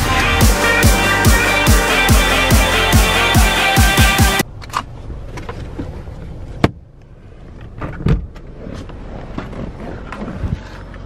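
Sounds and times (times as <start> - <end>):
music: 0.0 - 4.4.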